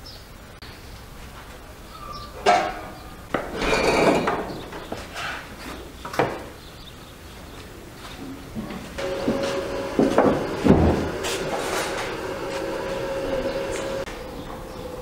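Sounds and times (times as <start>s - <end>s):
kitchenware clattering: 3.5s - 4.6s.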